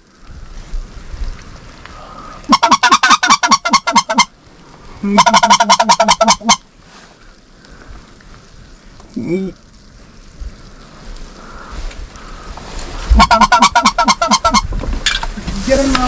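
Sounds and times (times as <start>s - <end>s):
goose honking: 2.5s - 4.3s, 5.0s - 6.6s, 13.1s - 14.7s.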